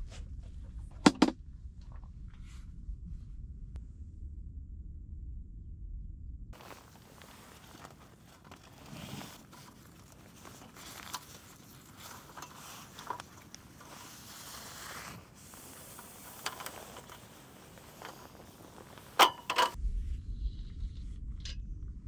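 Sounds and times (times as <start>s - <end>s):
nylon bag rustling: 6.6s - 19.8s.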